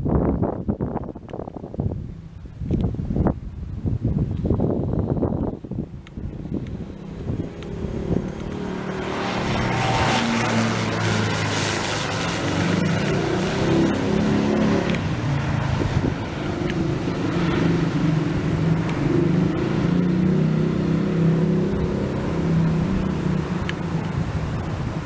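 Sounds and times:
turboprop engines droning: 5.3 - 25.0.

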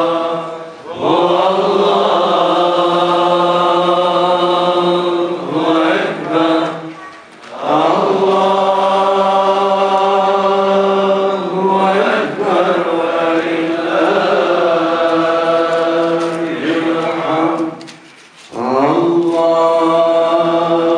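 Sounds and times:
men chanting devotional melody: 0.0 - 20.9.

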